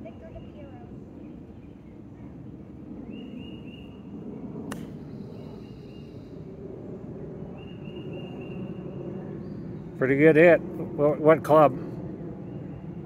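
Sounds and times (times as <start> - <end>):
steady outdoor rumble: 0.0 - 13.0
bird chirping: 3.0 - 4.0, 7.6 - 9.9
golf club striking ball: 4.7 - 5.1.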